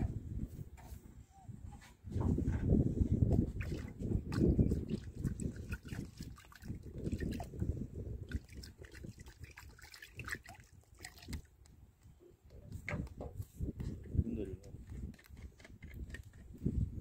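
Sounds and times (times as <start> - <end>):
water sloshing in plastic drum: 2.2 - 11.6
water trickling and splashing: 3.3 - 11.8.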